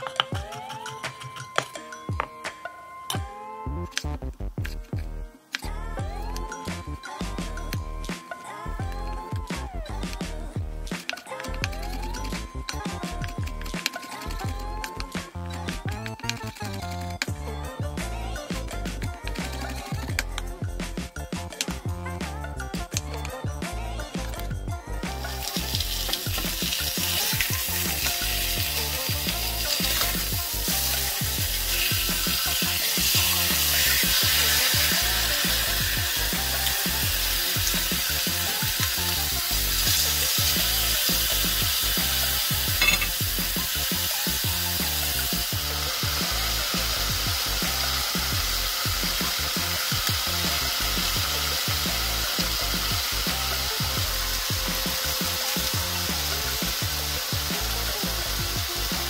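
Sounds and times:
background music: 0:00.0 - 0:59.0
chicken sizzling in a skillet: 0:25.2 - 0:59.0.

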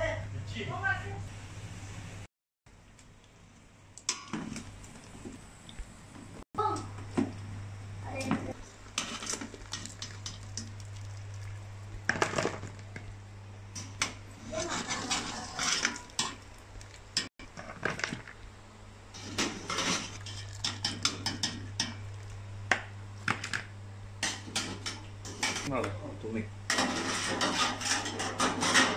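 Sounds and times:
strainer scraping metal pot: 0:14.4 - 0:16.3, 0:19.2 - 0:21.1, 0:26.7 - 0:28.9.

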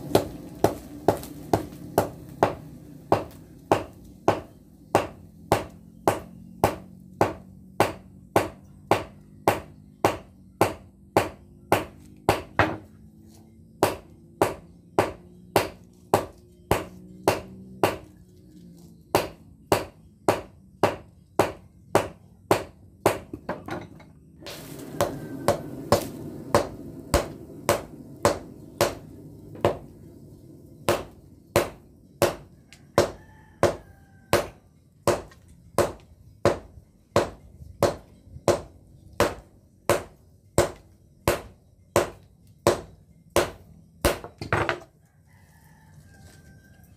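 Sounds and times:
hammer striking steel on anvil: 0:13.8 - 0:18.1, 0:25.0 - 0:29.9, 0:30.9 - 0:44.8.

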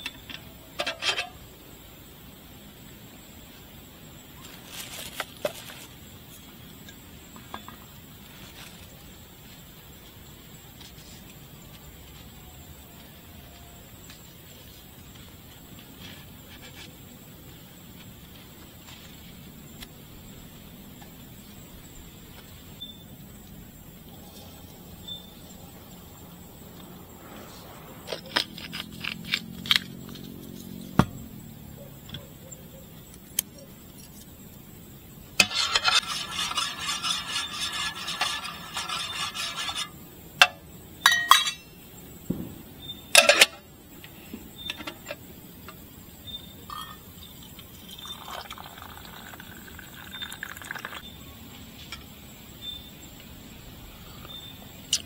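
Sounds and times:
rush of noise: 0:24.2 - 0:31.3
camp gear clinking and knocking: 0:40.4 - 0:42.5, 0:43.2 - 0:43.6.

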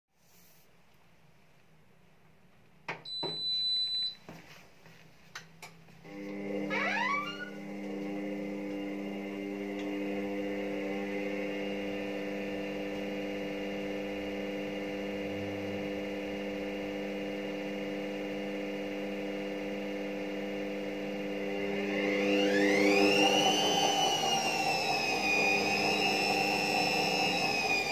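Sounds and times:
washing machine spinning: 0:06.1 - 0:27.9.

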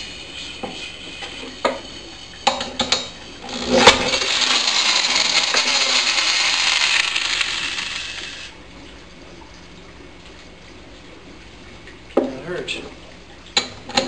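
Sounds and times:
drill spinning engine whirring: 0:03.4 - 0:08.5.

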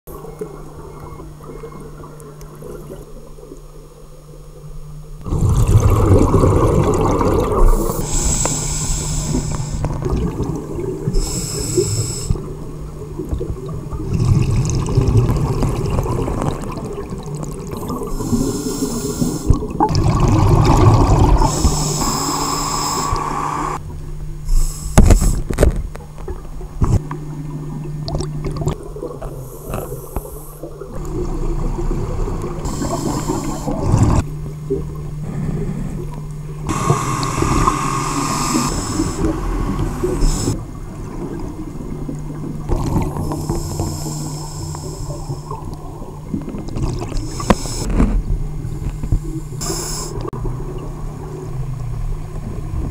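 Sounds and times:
steady low hum: 0:00.1 - 0:52.9
gurgling exhaled bubbles: 0:05.2 - 0:23.8, 0:26.3 - 0:49.6
hissing regulator inhale: 0:07.7 - 0:10.0, 0:11.1 - 0:12.5, 0:18.0 - 0:19.6, 0:21.3 - 0:23.8, 0:24.5 - 0:25.5, 0:29.3 - 0:30.7, 0:32.5 - 0:34.2, 0:35.2 - 0:40.7, 0:43.1 - 0:45.7, 0:47.1 - 0:48.0, 0:48.9 - 0:50.3.

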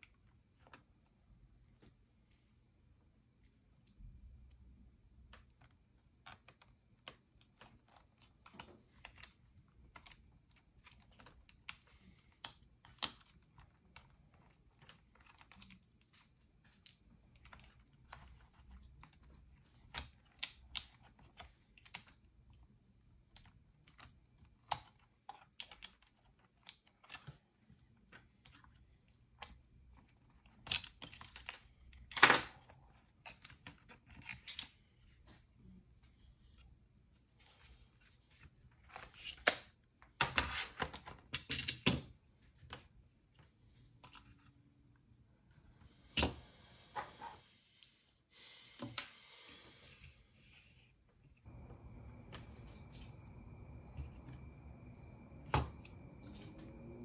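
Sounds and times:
faint high whine: 0:44.0 - 0:57.0.

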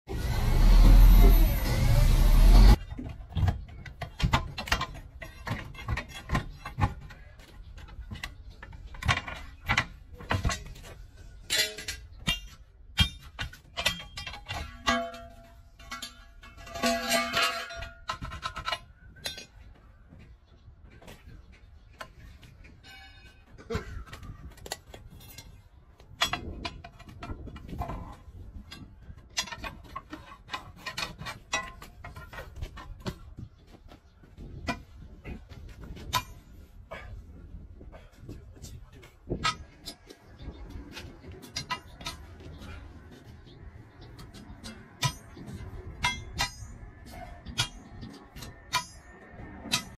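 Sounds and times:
steel tool clinking on wheel rim: 0:09.1 - 0:19.6, 0:39.4 - 0:49.9.

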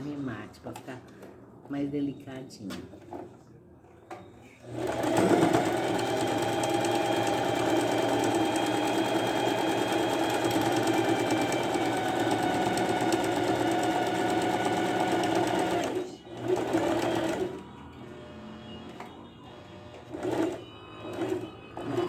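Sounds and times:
sewing machine running: 0:04.7 - 0:17.6, 0:20.0 - 0:22.0.

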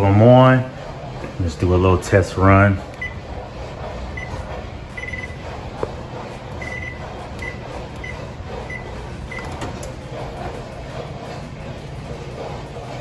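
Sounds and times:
microwave keypad beeps: 0:05.0 - 0:05.4, 0:06.6 - 0:09.6.

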